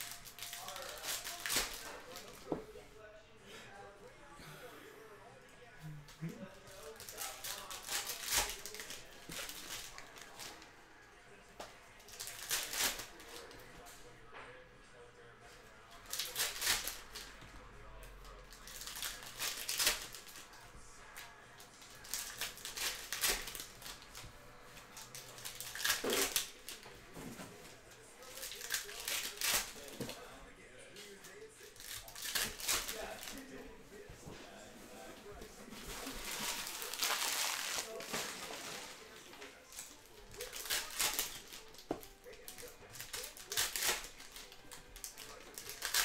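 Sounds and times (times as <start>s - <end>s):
foil packs crinkling and tearing: 0.0s - 2.5s, 6.7s - 10.7s, 12.0s - 13.6s, 16.0s - 17.3s, 18.2s - 20.6s, 21.2s - 24.3s, 24.9s - 26.9s, 28.2s - 30.2s, 31.2s - 33.6s, 35.8s - 46.0s.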